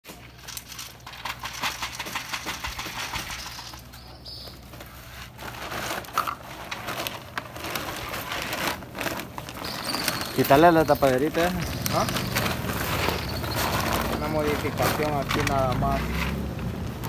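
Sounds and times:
plastic and wire crinkling: 0.1s - 17.0s
high chirp: 9.6s - 14.3s.

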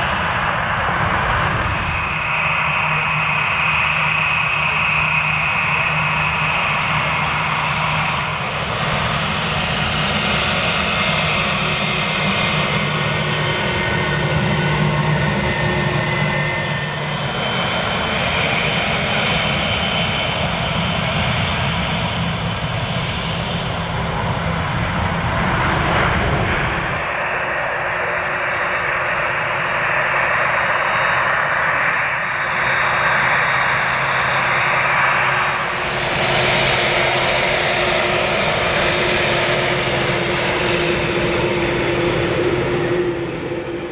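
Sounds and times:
jet engines rumbling and whining: 0.0s - 43.9s.

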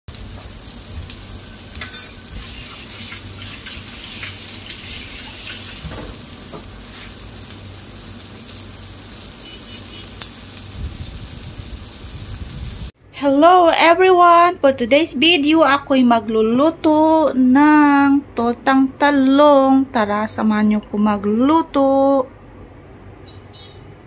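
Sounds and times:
omelette sizzling in oil: 0.1s - 13.0s.

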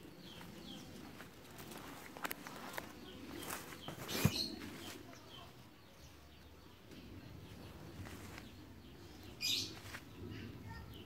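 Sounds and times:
rustling through dry leaves: 0.4s - 5.2s, 7.9s - 10.4s
faint bird chirps: 2.6s - 11.0s.

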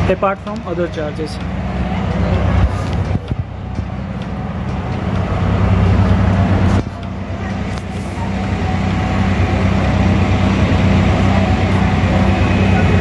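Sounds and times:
low engine-like drone: 0.0s - 13.0s.

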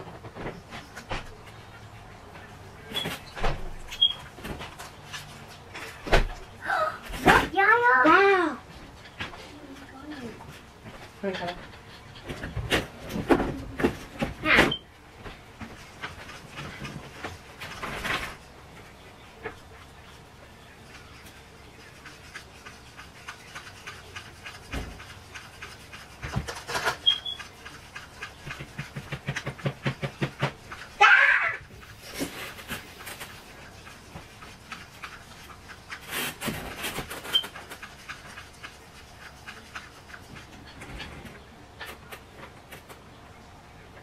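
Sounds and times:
brief squeak: 2.9s - 4.2s
paintbrushes tapping in plastic bowls: 21.8s - 30.9s.

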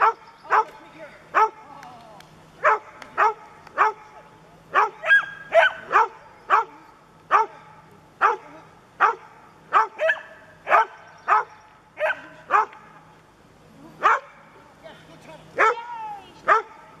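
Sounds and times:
dog barking: 0.0s - 1.6s, 2.6s - 12.8s, 14.0s - 14.5s, 15.6s - 15.9s, 16.5s - 16.9s.

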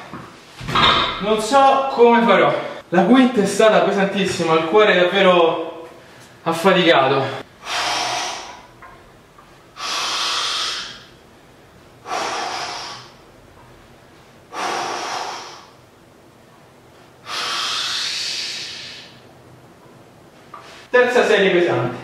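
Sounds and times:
man breathing heavily: 7.5s - 8.8s, 9.7s - 11.2s, 12.0s - 13.3s, 14.5s - 15.8s, 17.2s - 19.2s.

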